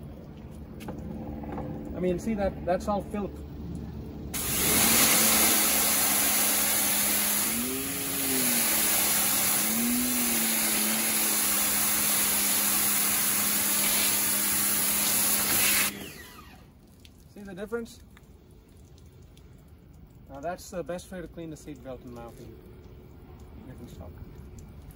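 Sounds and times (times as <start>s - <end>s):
pump motor humming: 4.3s - 16.8s
pressure washer water hiss: 4.4s - 16.2s.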